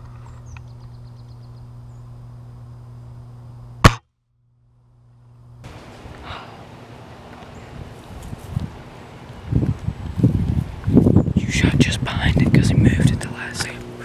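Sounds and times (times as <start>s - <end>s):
low hum: 0.0s - 14.0s
gunshot: 3.8s - 4.0s.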